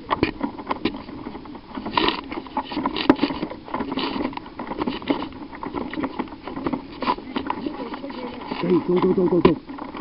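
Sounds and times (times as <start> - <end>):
gear jostling: 0.0 - 10.0
footsteps: 1.7 - 9.6.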